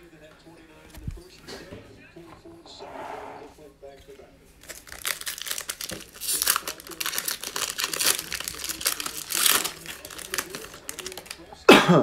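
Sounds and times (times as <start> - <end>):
foil wrapper tearing and crinkling: 4.6 - 11.4.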